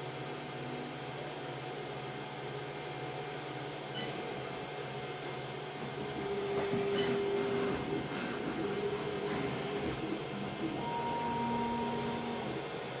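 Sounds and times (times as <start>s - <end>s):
steady hum: 1.6s - 13.0s
stepper motors whining: 6.2s - 12.7s
loud steady motor tone: 6.2s - 13.0s.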